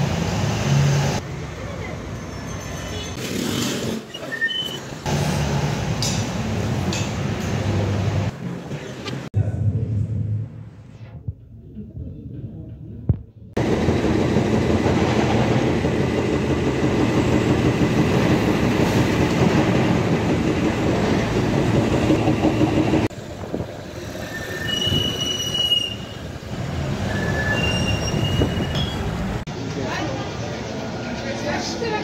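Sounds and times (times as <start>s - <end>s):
short high-pitched squeals: 4.1s - 5.0s, 24.2s - 26.3s, 27.0s - 29.2s
vehicle rumble and rattle: 26.4s - 29.5s.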